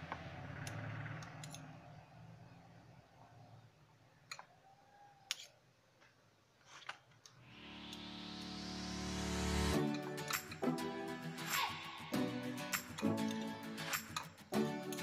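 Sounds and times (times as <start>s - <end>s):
background music: 7.5s - 15.0s.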